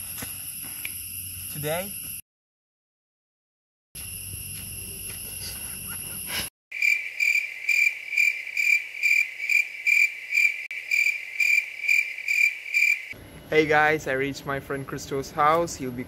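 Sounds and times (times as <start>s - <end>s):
cricket chirping: 0.0s - 2.2s, 4.0s - 13.2s.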